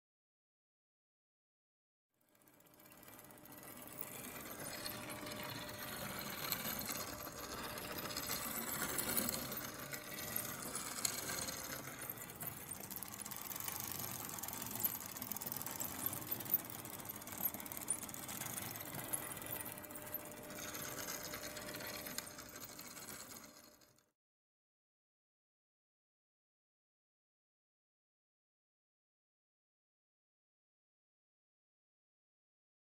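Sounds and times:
small machine clattering: 2.2s - 24.1s.

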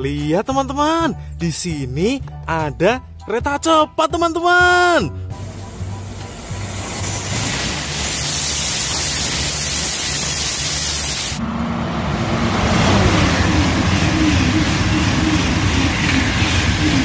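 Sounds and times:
train rumble with wavering hum: 5.1s - 17.0s
high-speed train rushing past: 5.3s - 17.0s.

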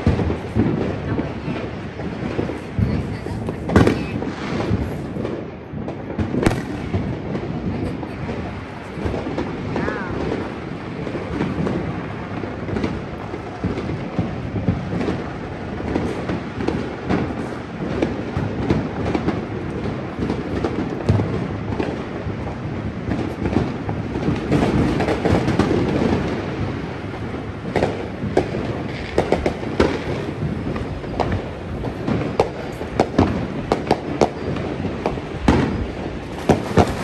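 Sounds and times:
fireworks rumbling and crackling: 0.0s - 37.0s
sharp firework bangs: 0.0s - 37.0s.

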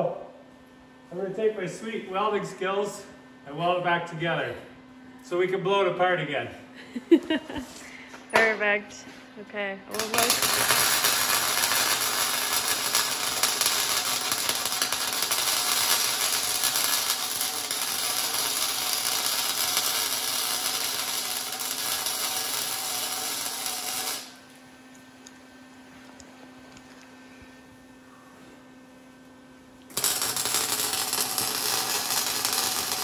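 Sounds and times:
welding arc crackling hiss: 9.9s - 24.6s, 29.9s - 33.0s.

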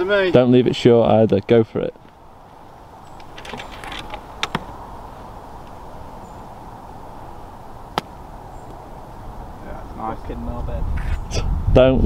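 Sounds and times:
outdoor background noise: 0.0s - 12.0s
putter striking golf ball: 7.9s - 8.8s.

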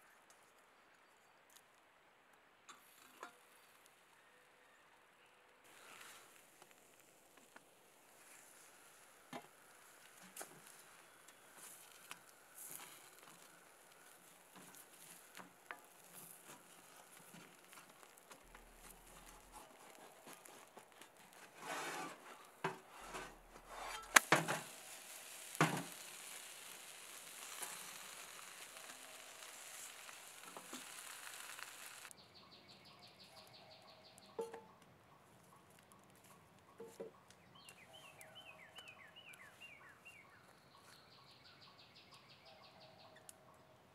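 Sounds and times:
food sizzling in a skillet: 8.1s - 19.5s, 23.9s - 32.1s
metal knocks and scrapes: 21.5s - 24.7s.

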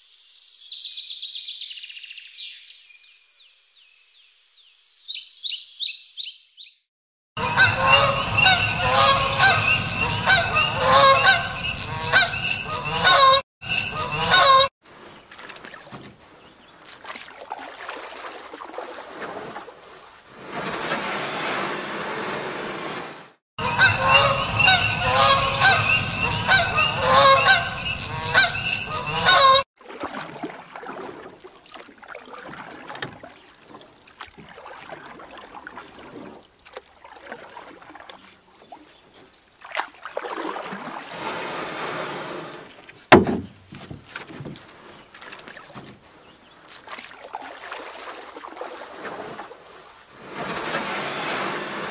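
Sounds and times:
geese honking: 7.4s - 14.7s, 23.6s - 29.6s.

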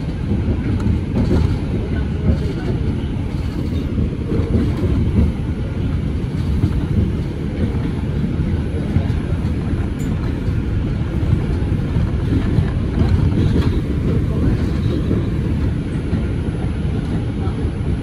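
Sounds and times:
subway car wheels rumbling on rail: 0.0s - 18.0s.

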